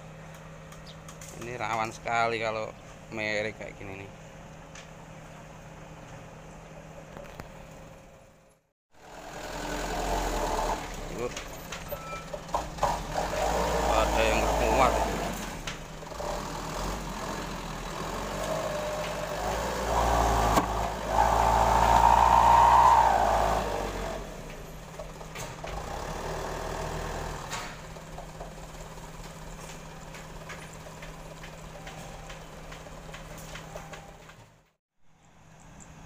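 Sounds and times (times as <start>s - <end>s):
diesel truck engine pulling hard: 9.0s - 34.6s.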